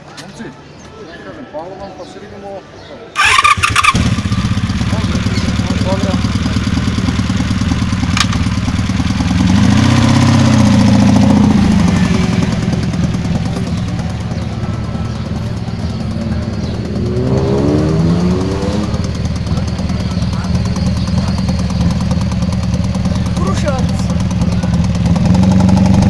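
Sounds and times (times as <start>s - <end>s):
motorcycle engine idling and revving: 3.2s - 26.0s
sharp click: 8.1s - 8.4s.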